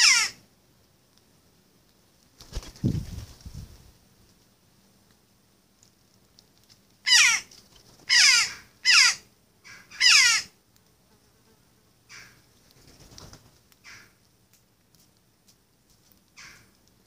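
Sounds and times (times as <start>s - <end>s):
jackdaw calling: 0.0s - 0.4s, 7.1s - 7.5s, 8.1s - 10.5s, 16.4s - 16.7s.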